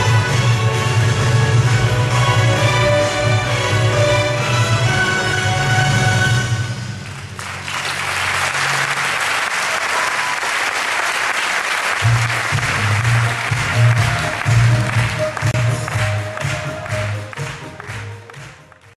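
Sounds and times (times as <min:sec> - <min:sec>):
audience applauding: 0:07.0 - 0:18.9
music with bass beat: 0:12.1 - 0:18.7.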